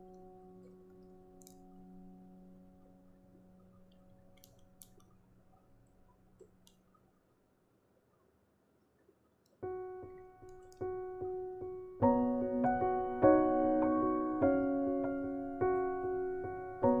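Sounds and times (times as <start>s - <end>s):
faint clicks: 0.0s - 2.2s, 2.8s - 7.4s, 8.0s - 11.0s
soft piano music: 0.0s - 6.4s, 9.6s - 17.0s.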